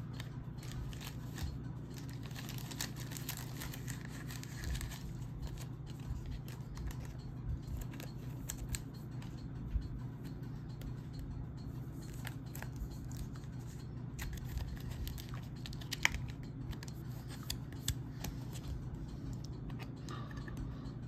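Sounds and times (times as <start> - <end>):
cards clicking and rustling: 0.0 - 9.4, 12.0 - 20.6
steady low hum: 0.0 - 21.0
foil wrapper crinkling and tearing: 0.1 - 5.7.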